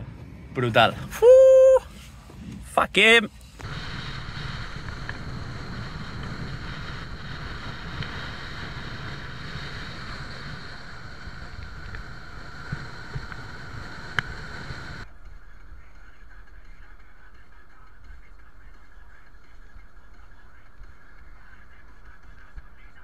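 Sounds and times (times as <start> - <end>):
wind hiss: 0.0 - 15.7.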